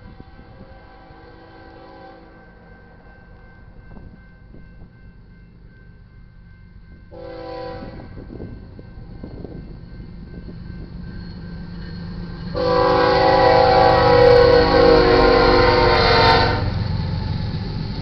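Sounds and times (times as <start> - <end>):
locomotive air horn blasts: 0.0 - 2.4, 7.2 - 8.2, 12.5 - 16.9
train rumble: 0.0 - 18.0.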